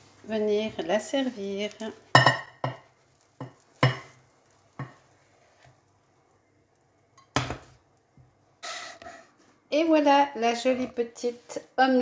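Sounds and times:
frying pan knocking on plate: 2.1s - 5.0s, 7.2s - 7.8s.

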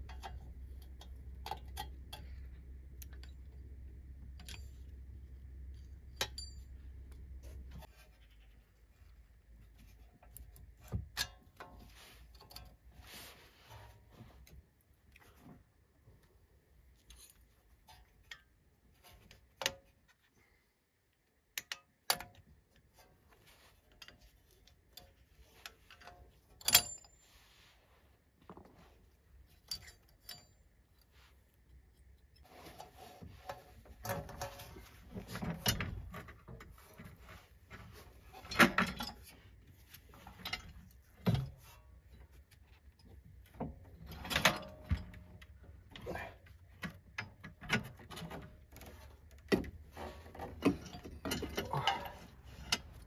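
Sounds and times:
hand tools clinking on steel parts: 6.1s - 7.2s, 29.5s - 30.8s, 50.5s - 53.0s.

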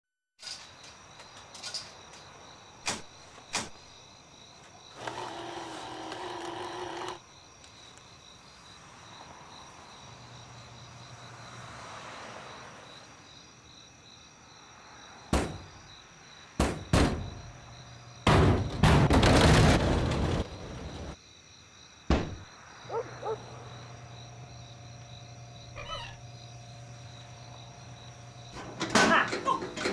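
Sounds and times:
crickets chirping: 0.4s - 18.8s, 19.8s - 29.9s
loud thuds: 16.6s - 17.5s, 18.2s - 21.2s, 22.1s - 22.5s.

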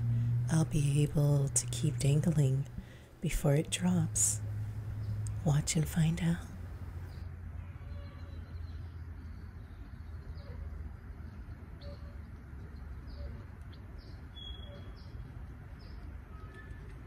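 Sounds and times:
steady low rumble: 0.0s - 7.5s
small bird chirping: 11.3s - 16.8s.

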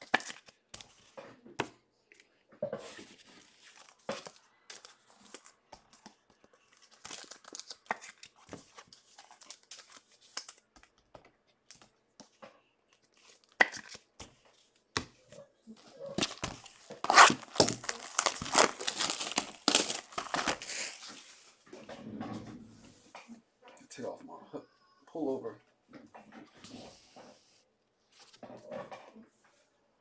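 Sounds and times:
card pack wrappers tearing and crinkling: 6.7s - 10.6s, 16.2s - 21.2s.

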